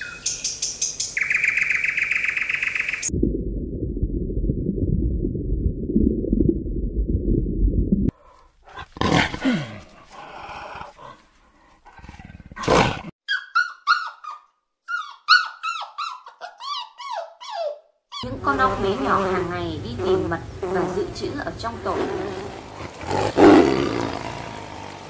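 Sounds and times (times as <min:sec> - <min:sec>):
low rumble: 0:03.1 - 0:08.1
leopard growling: 0:08.1 - 0:13.1, 0:21.8 - 0:25.0
dogs whining yips: 0:13.3 - 0:18.2.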